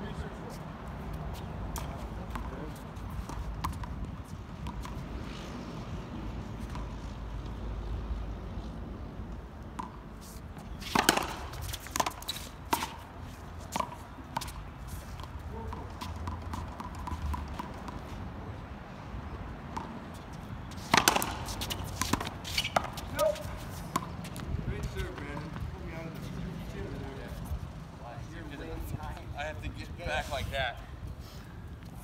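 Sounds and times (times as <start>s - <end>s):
rackets smacking rubber ball: 20.9s - 23.0s.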